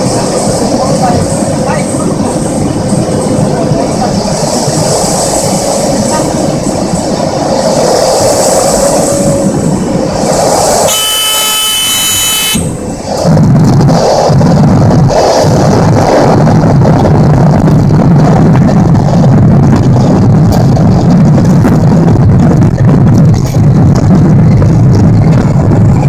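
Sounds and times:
turboprop engine droning: 0:00.0 - 0:26.0
wind noise: 0:00.0 - 0:26.0
warning tone: 0:10.9 - 0:12.9
low rumble of touchdown: 0:12.6 - 0:26.0.

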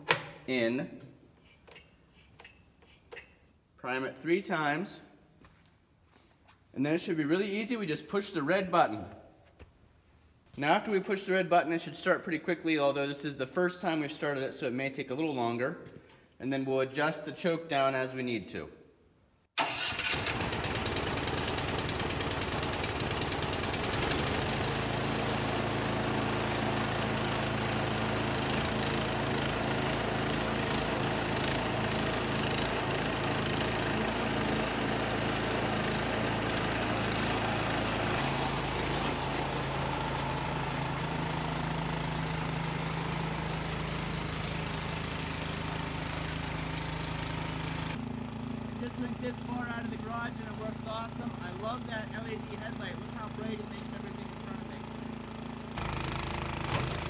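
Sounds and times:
electric starter cranking: 0:19.6 - 0:57.0
snowblower engine starting and running: 0:19.6 - 0:57.0.

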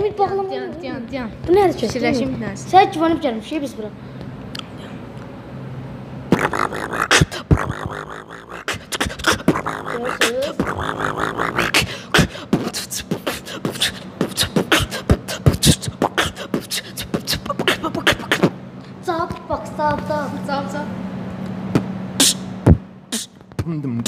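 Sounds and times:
beatboxing mouth drums: 0:06.3 - 0:18.6, 0:21.7 - 0:24.0
hummed gliding vocal tones: 0:06.3 - 0:18.6, 0:22.2 - 0:23.8.

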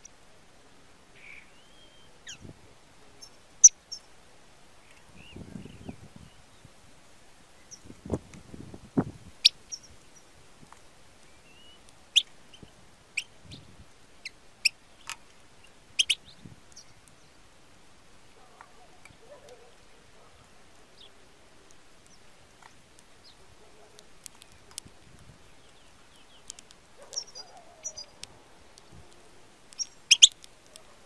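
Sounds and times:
goldfinch call notes: 0:29.7 - 0:30.5.

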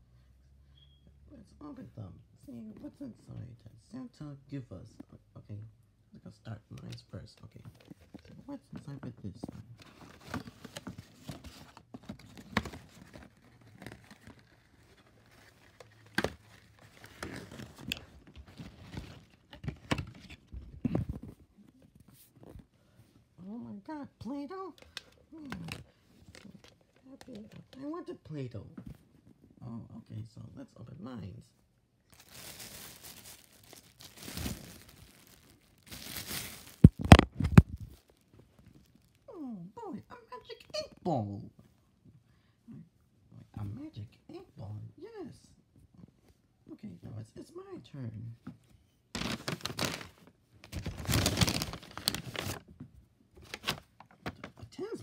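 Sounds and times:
wrapping paper crinkling and ripping: 0:12.3 - 0:19.5, 0:32.1 - 0:39.2, 0:49.2 - 0:52.6, 0:53.4 - 0:53.9.

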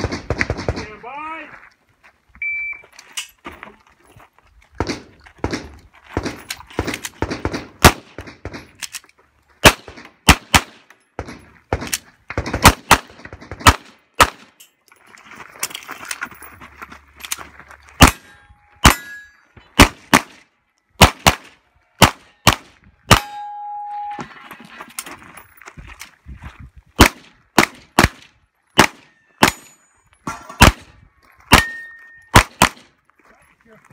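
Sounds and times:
metallic ring of steel target: 0:18.1 - 0:19.6, 0:23.1 - 0:24.5, 0:29.1 - 0:30.7, 0:31.5 - 0:32.4
handgun shots: 0:21.0 - 0:23.6, 0:31.5 - 0:32.8.

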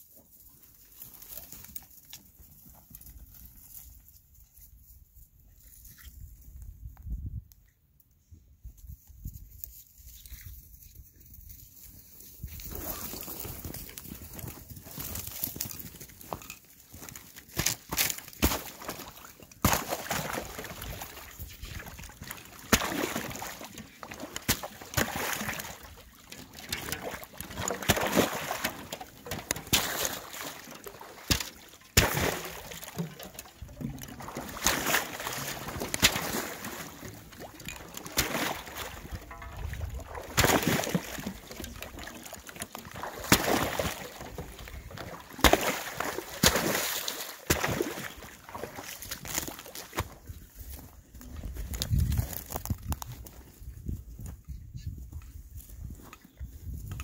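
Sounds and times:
water splashing and sloshing: 0:12.3 - 0:54.0
thin ice cracking: 0:22.0 - 0:44.4.

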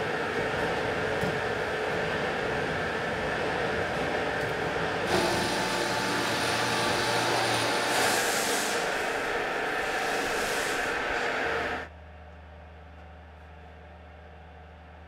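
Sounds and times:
angle grinder whine and hiss: 0:05.1 - 0:11.9
stone-working machinery din: 0:05.1 - 0:11.9.

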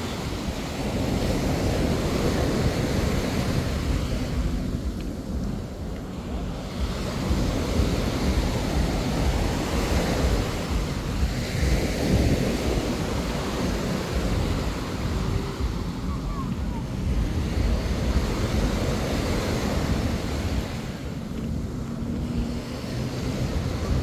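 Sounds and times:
small waves washing on sand: 0:00.0 - 0:24.0
wind rumble on microphone: 0:00.0 - 0:24.0.

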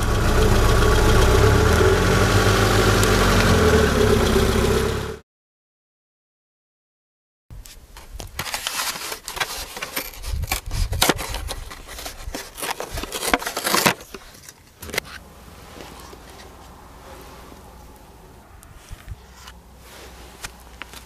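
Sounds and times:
tyre crushing brittle object: 0:08.4 - 0:15.2
steady low rumble: 0:15.2 - 0:20.9.

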